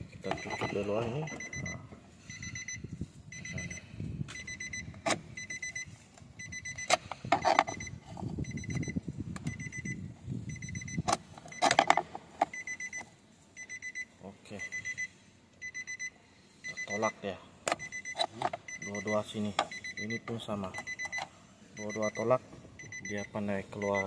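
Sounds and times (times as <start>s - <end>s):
electronic beeper short high beeps: 0.4s - 3.8s.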